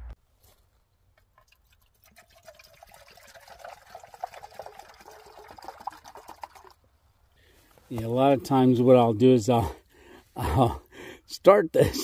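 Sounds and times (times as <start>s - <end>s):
water pouring into metal cup: 1.4s - 6.8s.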